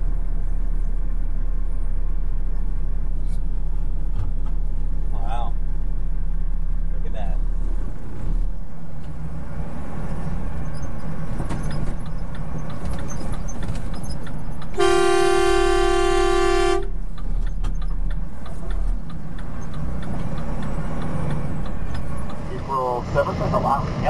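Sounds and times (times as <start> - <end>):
engine hum and road noise: 0.0 - 24.0
vehicle horn blast: 14.8 - 17.0.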